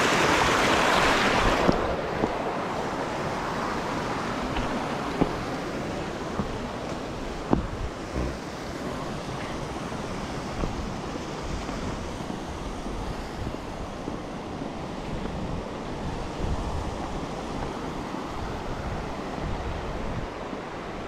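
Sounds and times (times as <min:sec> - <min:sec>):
creek water flowing: 0:00.0 - 0:16.1.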